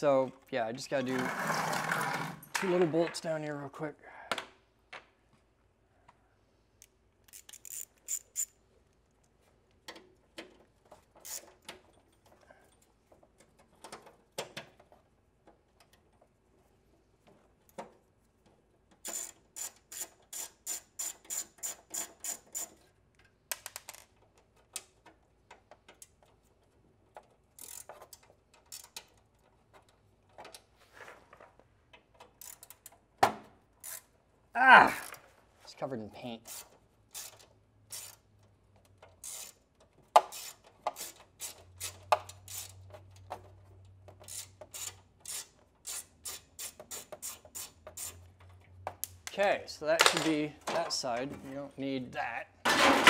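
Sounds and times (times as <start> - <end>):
metal scrapes: 0.9 - 2.8
hand ratchet clicking: 6.8 - 8.6, 11.1 - 11.8, 18.9 - 22.8, 27.2 - 29.4, 32.1 - 33.0, 33.8 - 34.1, 36.4 - 49.2.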